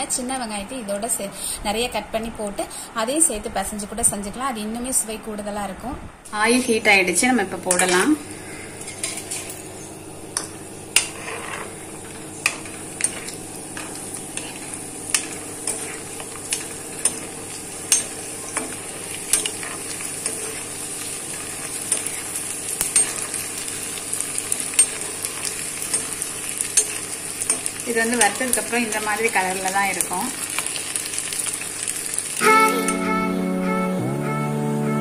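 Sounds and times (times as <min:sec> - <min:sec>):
food sizzling in hot oil: 0:06.5 - 0:32.6
ladle stirring: 0:07.6 - 0:29.2.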